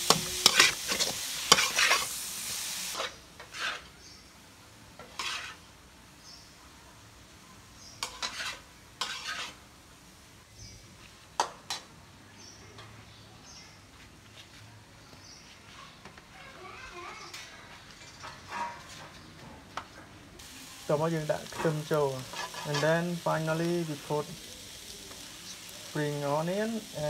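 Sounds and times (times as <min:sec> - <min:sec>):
spatula scraping a wok: 0:00.0 - 0:04.1, 0:05.0 - 0:05.7, 0:08.0 - 0:09.6, 0:18.1 - 0:19.2, 0:21.1 - 0:27.0
noodles sizzling in a wok: 0:00.0 - 0:12.5, 0:20.4 - 0:27.0.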